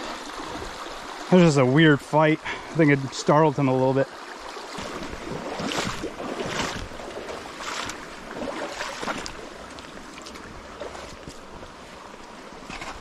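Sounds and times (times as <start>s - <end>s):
stream rushing: 0.0s - 13.0s
footsteps splashing through creek: 4.1s - 13.0s.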